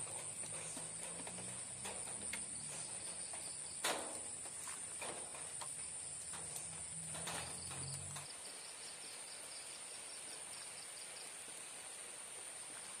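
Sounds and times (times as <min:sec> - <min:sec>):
ticks and rustles: 0:00.0 - 0:08.3
crickets chirping: 0:00.0 - 0:13.0.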